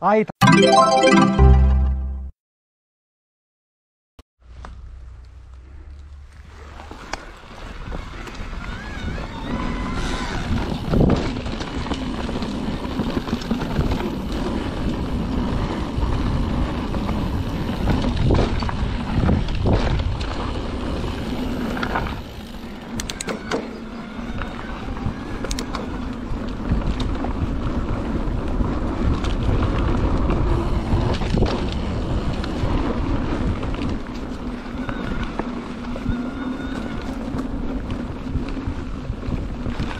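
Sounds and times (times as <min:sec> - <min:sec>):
tyres on dirt trail: 0:04.4 - 0:39.9
wind on microphone: 0:06.9 - 0:11.6, 0:13.5 - 0:23.1.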